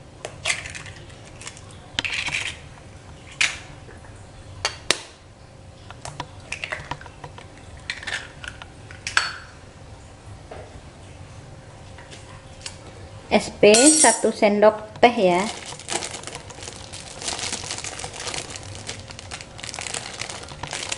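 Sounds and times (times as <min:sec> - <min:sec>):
eggshells crackling: 0:15.4 - 0:20.9.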